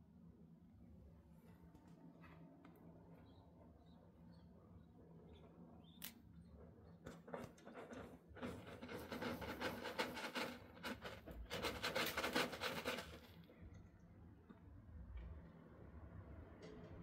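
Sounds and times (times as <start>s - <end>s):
cat scratching litter: 6.8s - 13.7s.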